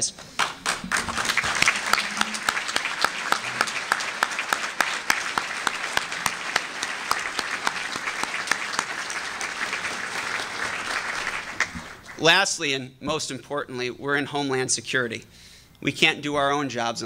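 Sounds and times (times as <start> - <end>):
audience applause: 0.4 - 12.2
close loud hand claps: 0.4 - 12.2.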